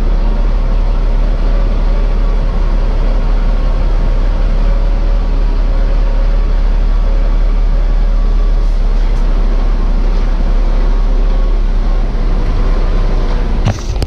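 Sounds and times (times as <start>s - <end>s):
truck diesel engine rumbling: 0.0s - 14.0s.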